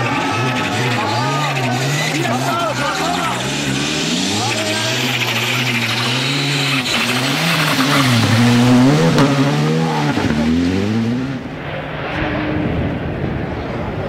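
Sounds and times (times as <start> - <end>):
tyres on gravel: 0.0 - 10.6
distant rally car engine: 0.0 - 14.0
rally car engine passing: 0.0 - 14.0.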